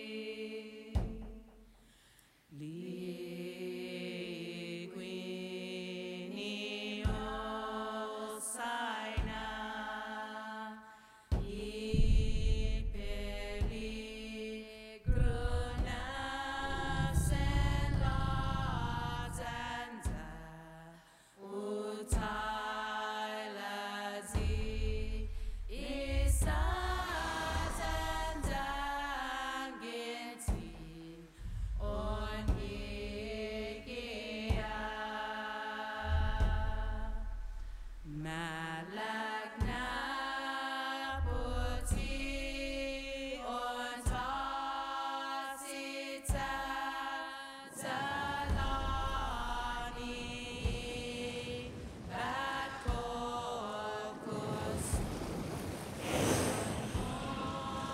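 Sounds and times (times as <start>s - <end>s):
choral chanting: 0.0s - 1.4s, 2.5s - 57.9s
deep low drone: 11.9s - 14.2s, 15.1s - 19.8s, 24.4s - 29.4s, 31.4s - 34.1s, 36.0s - 38.2s, 41.1s - 43.3s, 48.4s - 50.6s.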